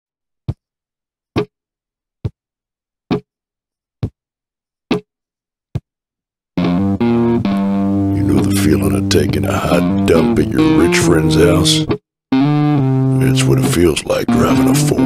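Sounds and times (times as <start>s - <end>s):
music with guitar and bass: 6.6s - 15.0s.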